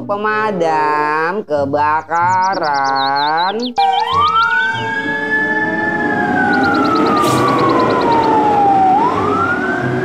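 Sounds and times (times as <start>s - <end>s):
fire engine siren wailing: 3.8s - 10.0s.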